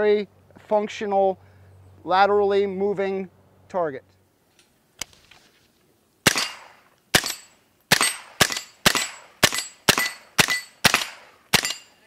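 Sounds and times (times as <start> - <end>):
rifle gunshots: 6.2 - 11.9.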